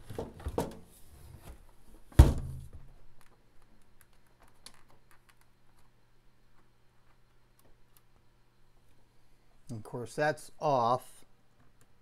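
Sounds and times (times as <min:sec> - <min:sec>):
faint low hum: 0:01.0 - 0:12.0
dull thunk: 0:02.2 - 0:02.6.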